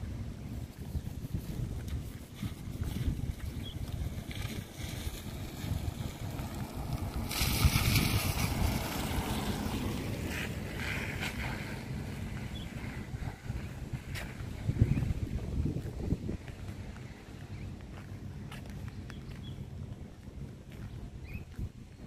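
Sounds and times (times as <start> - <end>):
wind buffeting microphone: 0.0 - 22.0
car tyres hissing on wet road: 4.1 - 14.4.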